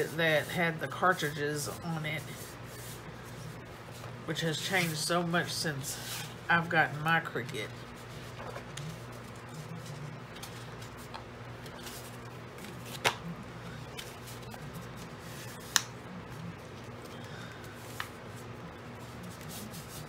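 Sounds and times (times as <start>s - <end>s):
faint steady hum: 0.0s - 20.0s
paper rustling: 7.7s - 15.8s.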